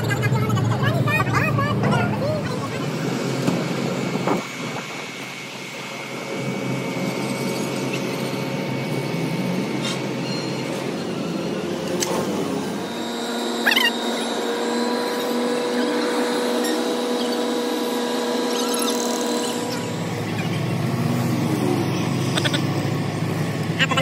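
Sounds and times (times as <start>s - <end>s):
motor-driven machine running: 0.0s - 24.0s
brief squeal: 9.8s - 11.0s.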